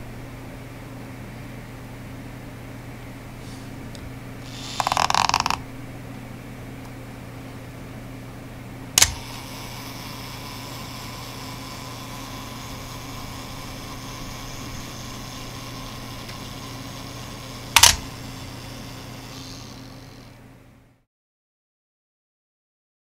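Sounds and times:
clockwork whirr: 4.4 - 5.6, 9.0 - 20.4
self-timer click: 9.0 - 20.0.

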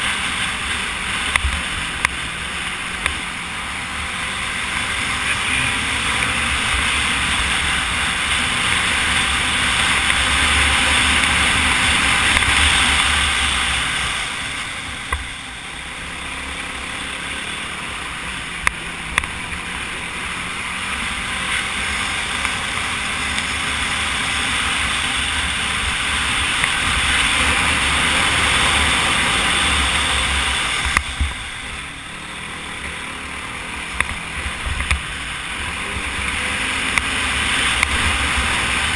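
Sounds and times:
quad engine running: 0.0 - 38.9.

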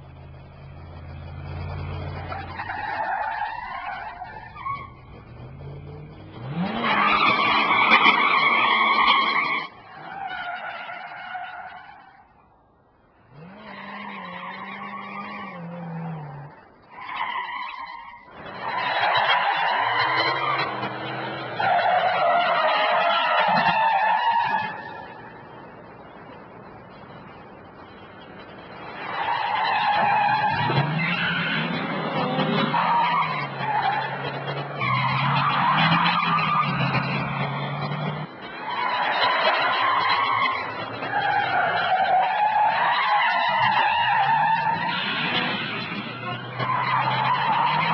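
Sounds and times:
engine low drone: 0.0 - 8.2
car tyres screeching: 0.0 - 12.5, 13.1 - 47.9.

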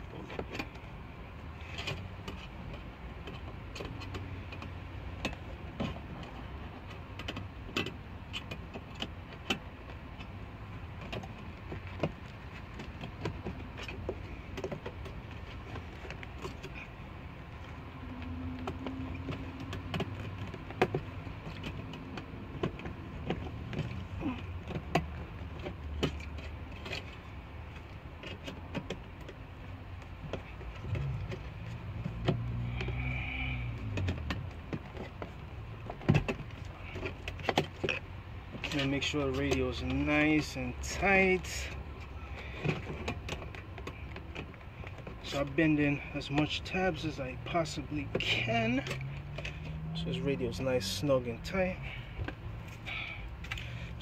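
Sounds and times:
metallic clicks and scrapes: 0.1 - 54.0.

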